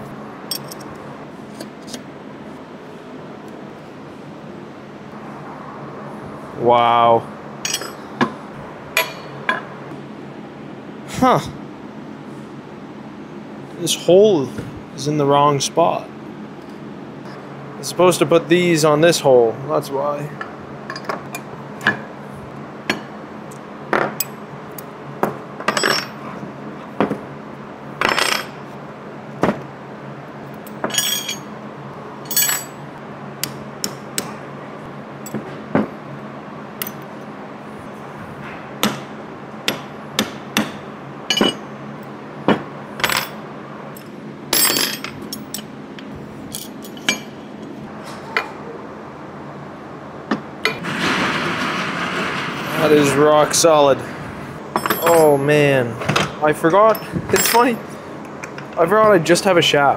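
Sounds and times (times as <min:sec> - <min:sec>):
low shop hum: 0:00.0 - 0:59.9
metal parts clinking on workbench: 0:00.5 - 0:00.9, 0:07.6 - 0:08.0, 0:30.8 - 0:31.5, 0:32.3 - 0:32.8, 0:41.3 - 0:41.6, 0:44.6 - 0:45.7, 0:46.5 - 0:47.2, 0:54.8 - 0:55.4, 0:56.9 - 0:57.8.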